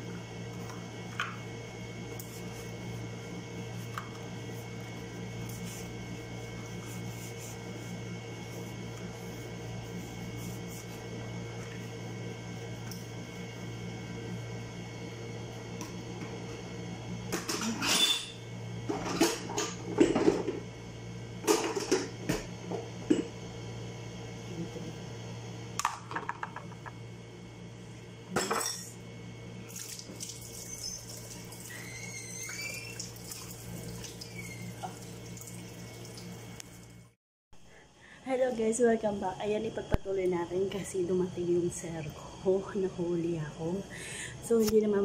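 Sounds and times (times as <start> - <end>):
steady low hum: 0.0 - 30.3, 33.2 - 45.0
tap water running: 29.7 - 37.1.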